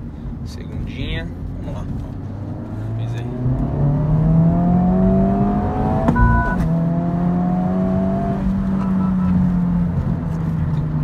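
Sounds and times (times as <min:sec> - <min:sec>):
car engine revving under full throttle: 0:01.3 - 0:11.0
short beep: 0:06.1 - 0:06.7, 0:08.8 - 0:09.5.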